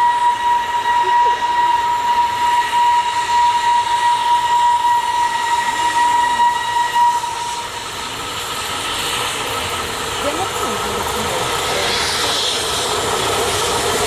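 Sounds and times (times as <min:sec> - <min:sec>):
steam locomotive whistle: 0:00.0 - 0:09.4.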